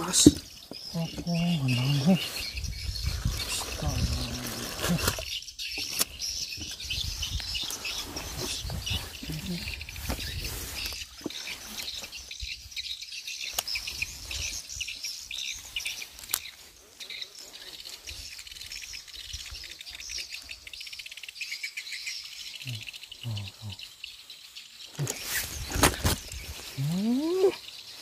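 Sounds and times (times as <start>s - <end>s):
birds chirping and calling: 0.0s - 28.0s
high insect trilling: 26.3s - 28.0s.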